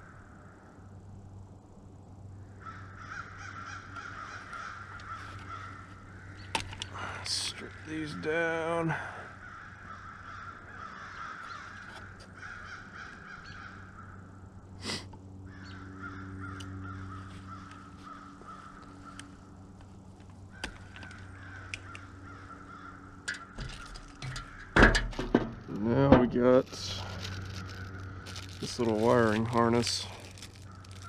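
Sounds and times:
birds calling: 2.3 - 31.0
wire strippers clicking and scraping: 18.8 - 22.1, 23.2 - 31.0
handling knocks: 23.3 - 26.6.

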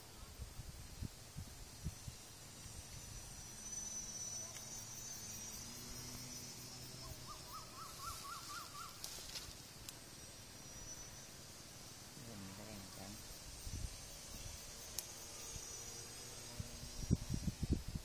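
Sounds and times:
high insect whine: 0.0 - 18.0
bird calling rising notes: 2.4 - 9.6.

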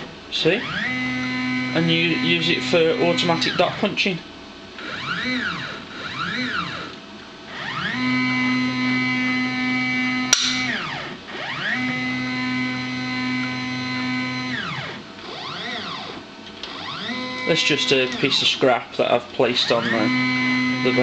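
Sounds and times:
stepper motor whine: 0.0 - 4.2, 4.8 - 21.0
sharp click: 10.3 - 10.8.

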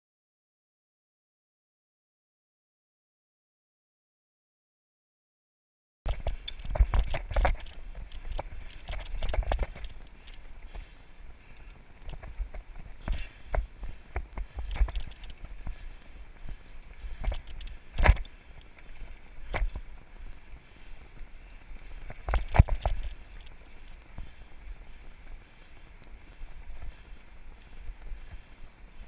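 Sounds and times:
bike hitting roots: 6.1 - 10.9, 17.2 - 18.9
bike rattling over bumps: 6.1 - 20.0, 21.4 - 28.5
bike tyres rolling on dirt: 6.1 - 29.0
wind rumble on microphone: 6.1 - 29.0.

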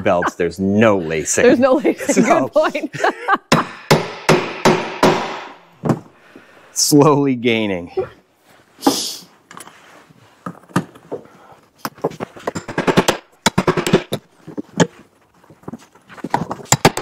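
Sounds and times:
hammer striking metal: 3.5 - 5.6.

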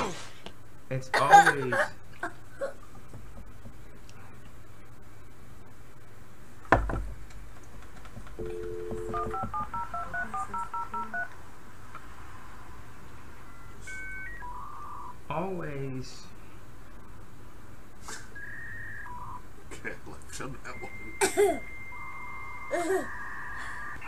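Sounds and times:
touch-tone dialing: 8.4 - 11.3
two-note dial tone: 8.4 - 11.3, 20.7 - 23.5
short beeps: 20.7 - 23.3.

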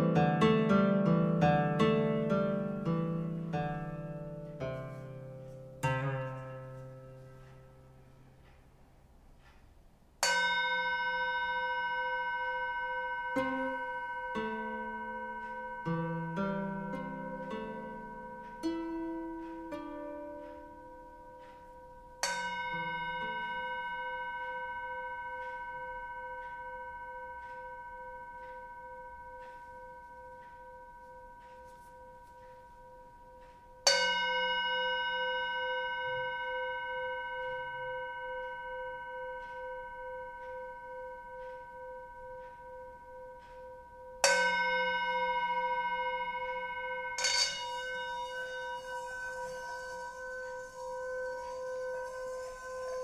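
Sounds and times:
mallet striking bowl: 10.2 - 53.0
singing bowl ringing: 10.2 - 53.0
mallet rubbed around bowl rim: 47.2 - 53.0.

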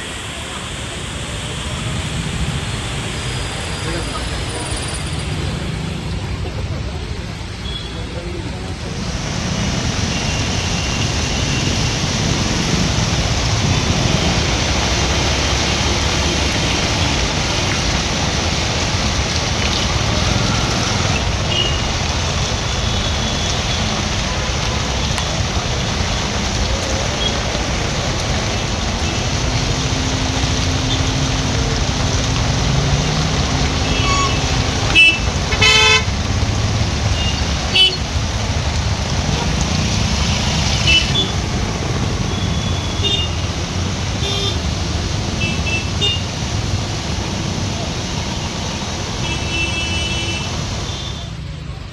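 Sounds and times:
traffic on wet road: 0.0 - 51.9
car horn toots: 33.9 - 36.1.

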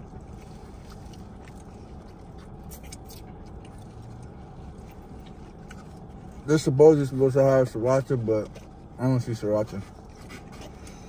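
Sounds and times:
person chewing food: 0.0 - 7.2, 9.9 - 11.0
low background hum: 0.0 - 11.0.

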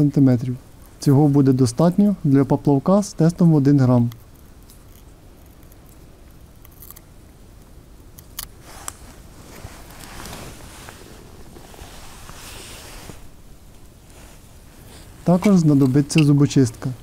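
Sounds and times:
soft rustling and scraping: 8.6 - 17.0.

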